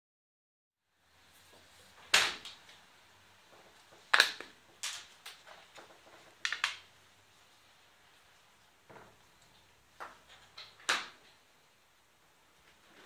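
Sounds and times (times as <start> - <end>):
plastic cover clicks and snaps: 4.1 - 6.8.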